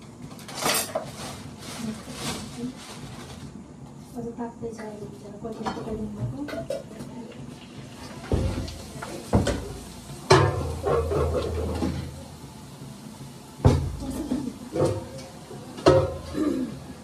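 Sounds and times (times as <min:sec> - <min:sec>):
cupboard doors and pots knocking: 0:08.3 - 0:12.0, 0:13.6 - 0:15.2, 0:15.8 - 0:16.6.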